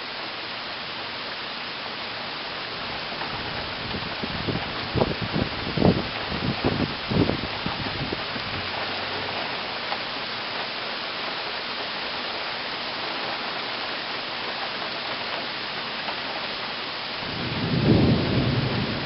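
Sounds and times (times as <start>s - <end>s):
heavy rain falling: 0.0s - 19.0s
low rumble of thunder: 3.2s - 8.6s, 17.2s - 19.0s.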